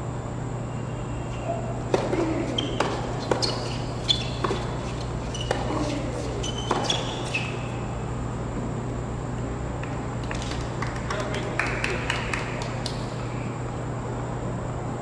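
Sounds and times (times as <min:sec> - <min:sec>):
low steady hum: 0:00.0 - 0:15.0
shoes squeaking on court: 0:00.8 - 0:08.4
racquet hitting tennis ball: 0:01.4 - 0:07.8
tennis ball bouncing: 0:01.8 - 0:07.8.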